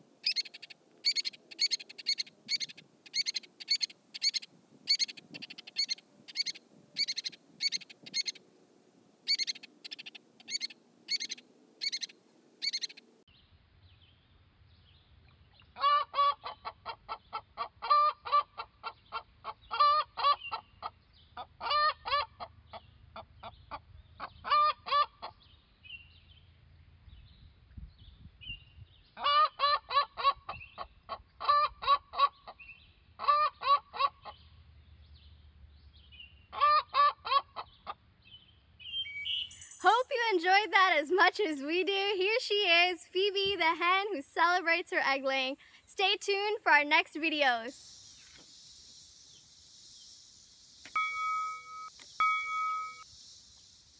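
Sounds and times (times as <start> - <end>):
hen clucking: 15.8 - 20.9, 21.6 - 22.5, 24.2 - 25.4, 33.2 - 34.4, 36.6 - 38.0.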